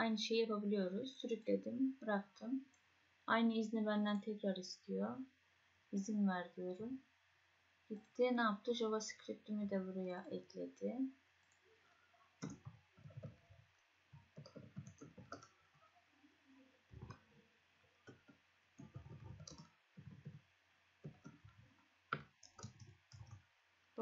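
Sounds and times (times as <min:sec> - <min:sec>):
faint keyboard typing: 0:11.4 - 0:23.5.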